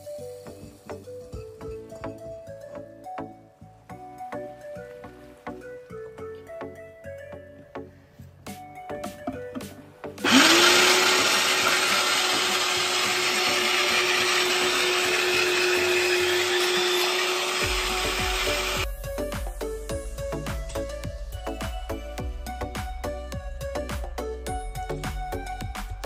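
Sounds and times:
beetroot grinding rush: 10.2s - 18.8s
electric grater motor whining: 10.2s - 18.8s.

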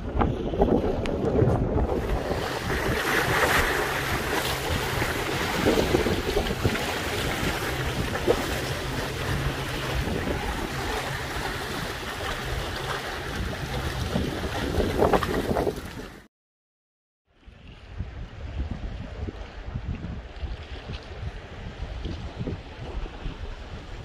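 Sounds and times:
waves splashing against concrete: 0.0s - 16.3s
wind buffeting microphone: 0.0s - 16.3s, 17.4s - 24.0s.

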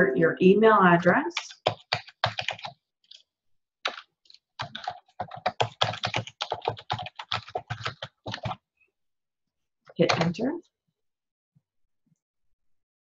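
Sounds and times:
computer keyboard typing: 1.3s - 3.2s, 3.8s - 8.6s, 10.0s - 10.4s.

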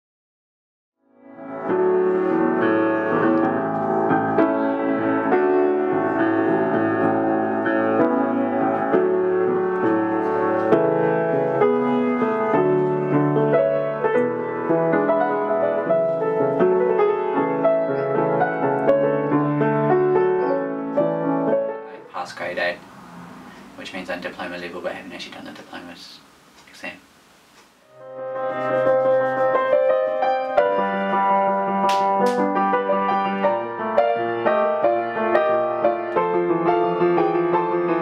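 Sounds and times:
piano playing: 1.0s - 25.0s, 27.8s - 38.0s.

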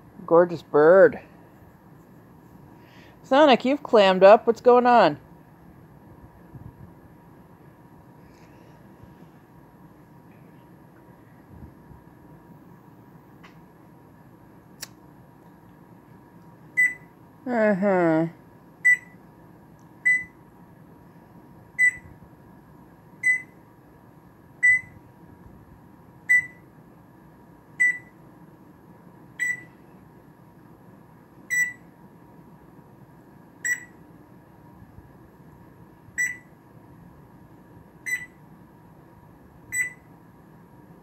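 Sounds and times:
parrot mimicking alarm beeps: 16.8s - 17.1s, 18.8s - 19.2s, 24.6s - 25.0s, 26.3s - 26.6s, 31.5s - 31.8s, 33.6s - 34.0s, 36.2s - 36.4s, 38.1s - 38.4s, 39.7s - 40.0s.

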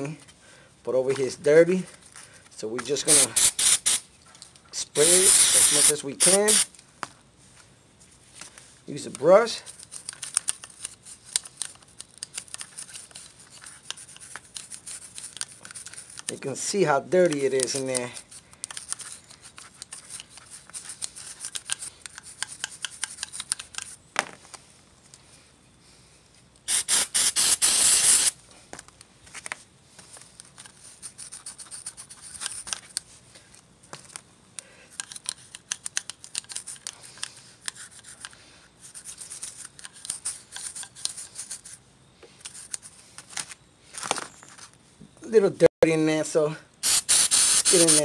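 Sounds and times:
aerosol spray hissing: 3.1s - 4.0s, 5.0s - 6.7s, 26.7s - 28.4s, 46.8s - 48.0s.

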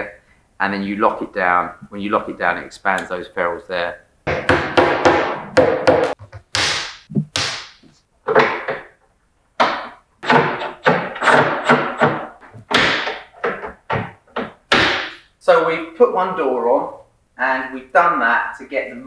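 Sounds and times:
hammer knocking hinges into wood: 4.3s - 9.0s, 9.6s - 15.2s.

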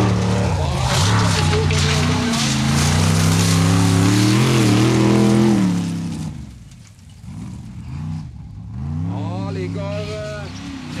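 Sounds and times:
car engine revving: 0.0s - 6.6s
tyres sliding on gravel: 0.0s - 7.6s.

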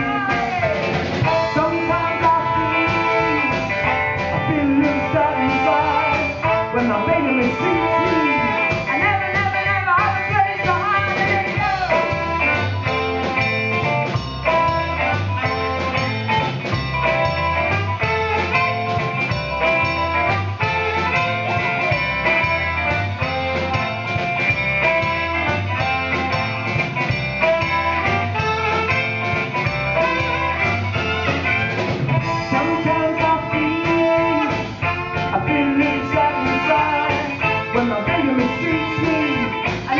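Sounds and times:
woman singing: 0.0s - 12.3s, 32.3s - 39.9s
soul band playing: 0.0s - 39.9s.

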